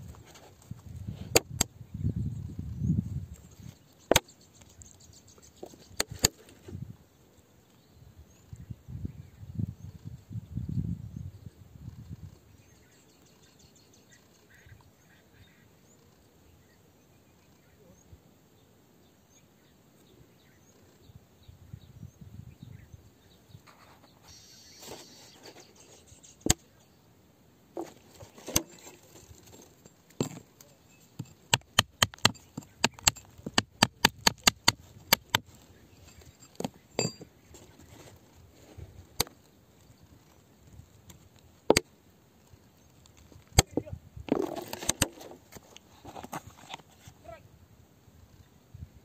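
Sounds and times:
metal rod striking rock: 30.2 - 30.5, 31.2 - 35.5, 36.1 - 37.3.

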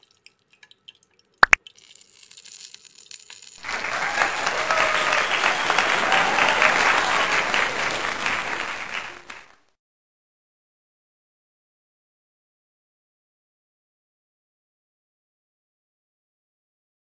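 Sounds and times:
crowd applauding: 3.6 - 9.7.

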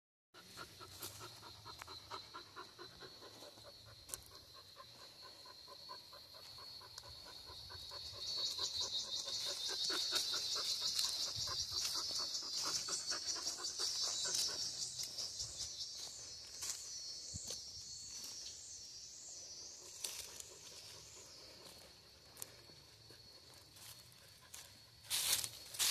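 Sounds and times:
dog panting: 0.4 - 15.3.

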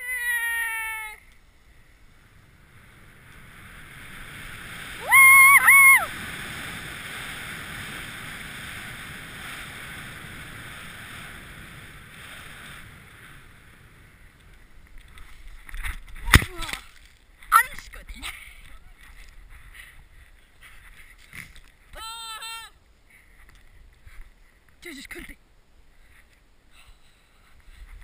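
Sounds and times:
high-pitched yell: 0.0 - 1.2, 5.0 - 6.1, 21.9 - 22.8
snowboard sliding over snow: 0.1 - 21.9.

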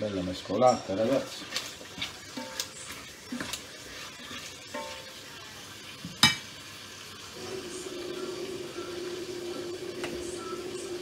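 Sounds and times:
spatula stirring meat in pot: 0.1 - 11.0
utensils clinking on dishes: 0.5 - 5.1, 6.1 - 6.5.

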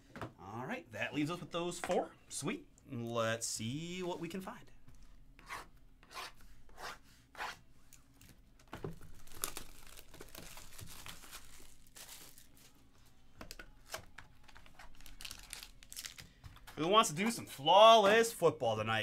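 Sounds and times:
plastic wrap tearing and crinkling: 8.9 - 12.8, 13.8 - 16.3.

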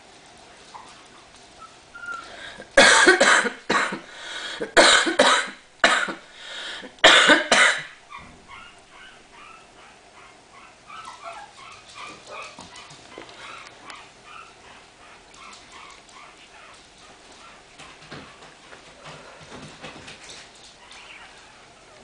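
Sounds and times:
puppies squeaking and whimpering: 0.7 - 2.4, 8.1 - 17.6, 20.8 - 22.0
harsh cough-like bursts: 2.8 - 8.0.

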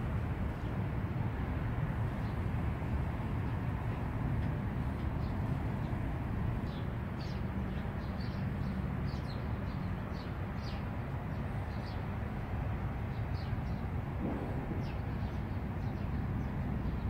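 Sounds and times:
small birds chirping: 4.8 - 12.3, 13.0 - 17.0
low rumble: 14.2 - 16.5.

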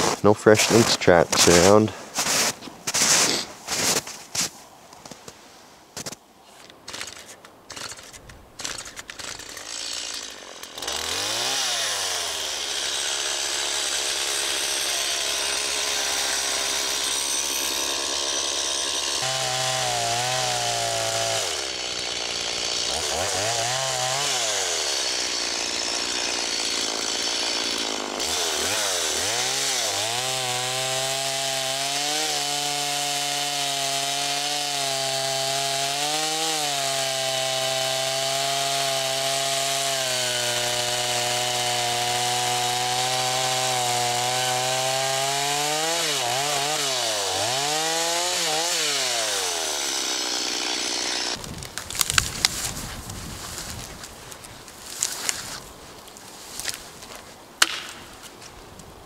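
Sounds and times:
chainsaw cutting log: 0.0 - 4.5, 6.9 - 58.4
sharp knocks: 57.6 - 58.0.

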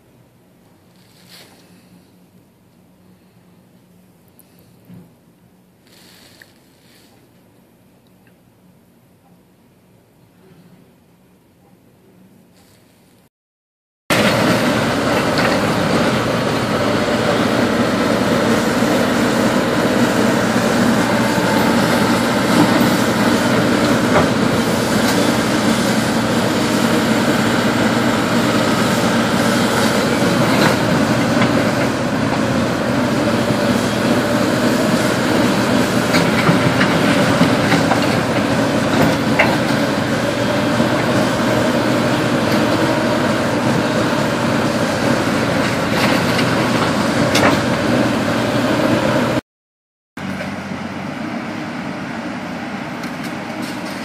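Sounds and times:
excavator diesel engine: 14.1 - 49.4, 50.2 - 54.0.

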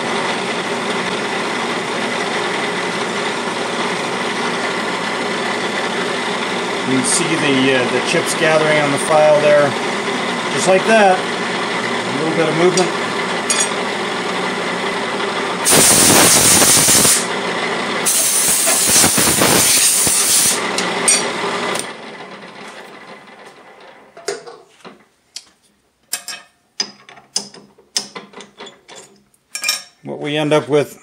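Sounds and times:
drill press motor running: 0.0 - 24.1
compressed air blow gun blasts: 15.6 - 17.2, 18.1 - 20.6.

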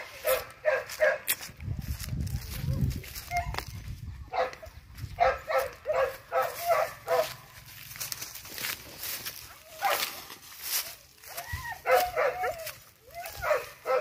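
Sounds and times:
dog barking: 0.2 - 1.3, 4.3 - 7.5, 9.7 - 10.2, 11.8 - 12.7, 13.4 - 14.0.

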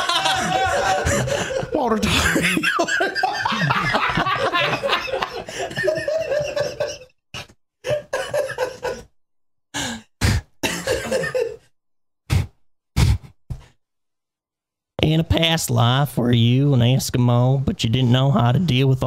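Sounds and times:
coughing: 0.0 - 9.1, 10.2 - 11.7
men laughing: 0.0 - 9.1, 10.8 - 11.6.

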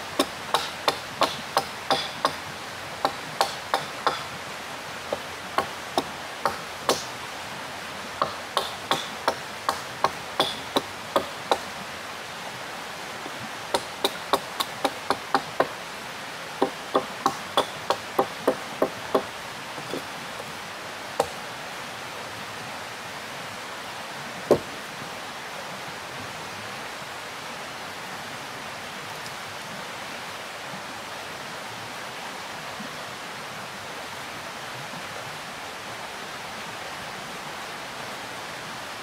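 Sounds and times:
river rushing: 0.0 - 39.0
hand tool striking wood: 0.2 - 2.4, 3.0 - 4.3, 5.1 - 7.1, 8.2 - 11.7, 13.7 - 15.8, 16.6 - 20.5, 21.2 - 21.4, 24.5 - 24.7.

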